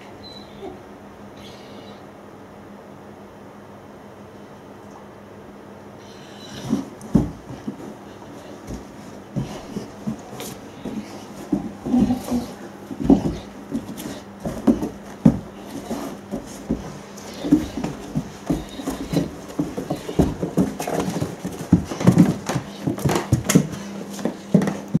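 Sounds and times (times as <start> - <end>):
faint steady hum: 0.0 - 25.0
paws thudding on carpeted stairs: 6.4 - 25.0.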